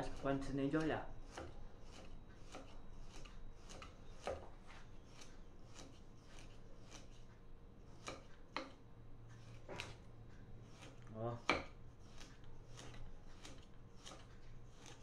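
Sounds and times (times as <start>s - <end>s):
knife cutting through fish: 0.0s - 7.2s, 10.6s - 15.0s.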